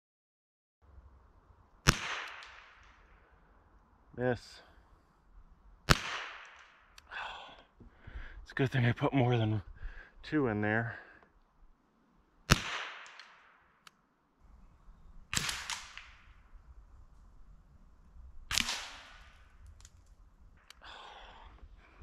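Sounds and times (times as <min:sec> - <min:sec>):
rifle shots echoing: 0:01.8 - 0:03.3, 0:05.8 - 0:07.0, 0:12.5 - 0:13.8, 0:15.2 - 0:16.5, 0:18.5 - 0:19.7.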